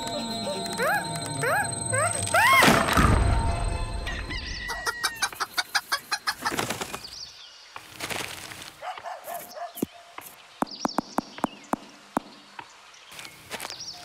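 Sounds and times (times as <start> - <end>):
hens clucking: 4.2 - 6.9
hens flapping wings: 6.3 - 7.2.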